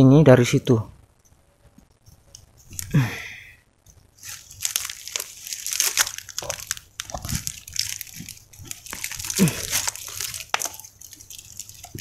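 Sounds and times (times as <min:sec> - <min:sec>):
dry palm fronds crackling: 0:04.1 - 0:12.0.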